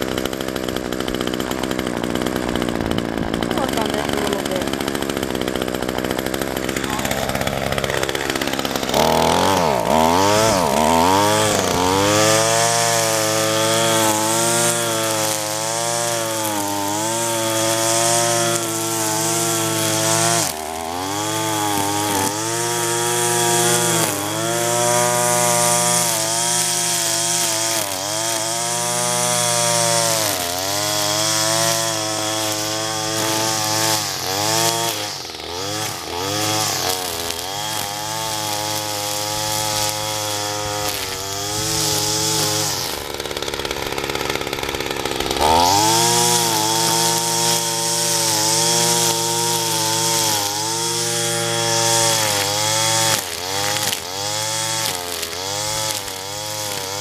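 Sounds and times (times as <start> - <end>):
string trimmer engine revving: 0.0 - 57.0.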